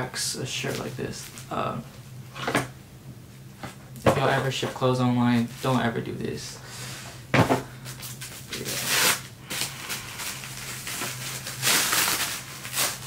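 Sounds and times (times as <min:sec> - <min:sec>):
plastic wrap crinkling: 0:08.0 - 0:13.0.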